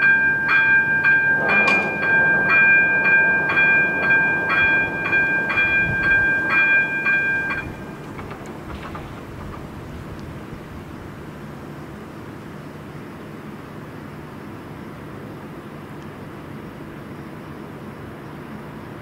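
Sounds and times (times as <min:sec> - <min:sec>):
level crossing bell ringing: 0:00.0 - 0:08.2.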